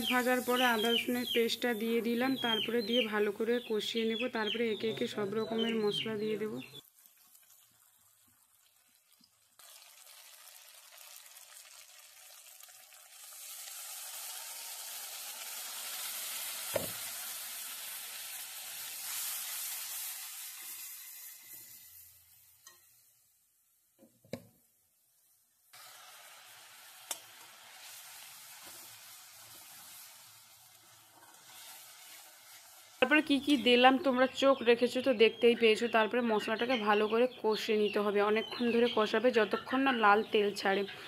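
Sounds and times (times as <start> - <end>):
onions sizzling in hot oil: 0.0 - 3.2, 6.8 - 23.3, 25.6 - 34.1.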